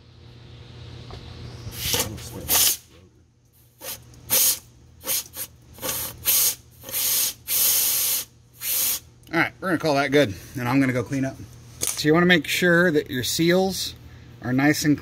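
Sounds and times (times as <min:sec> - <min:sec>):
compressed air hissing blasts: 0:01.7 - 0:02.9, 0:03.7 - 0:09.1.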